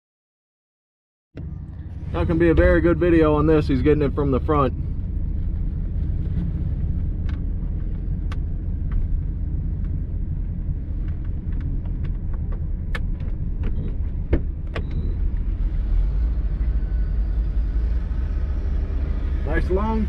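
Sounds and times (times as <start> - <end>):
heavy machine engine rumbling: 1.4 - 20.0
metal clanks and creaks: 11.1 - 15.5.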